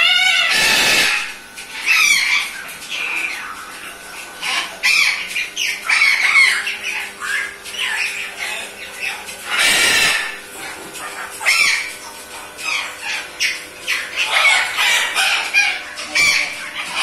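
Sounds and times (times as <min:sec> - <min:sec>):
parrot squawking: 0:00.0 - 0:17.0.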